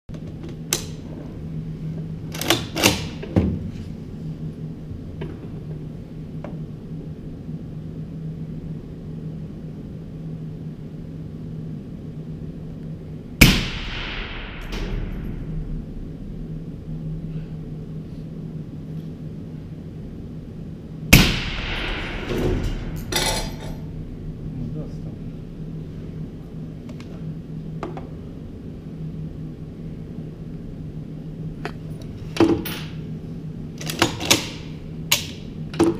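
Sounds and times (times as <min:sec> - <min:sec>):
low hum and rumble: 0:00.1 - 0:35.9
suppressed rifle shots: 0:13.4 - 0:15.6, 0:21.1 - 0:23.1.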